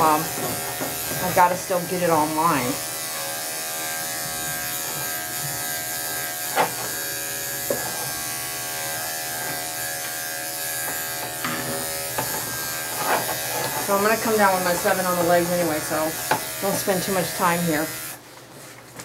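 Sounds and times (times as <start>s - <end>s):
electric clipper buzzing: 0.0s - 18.2s.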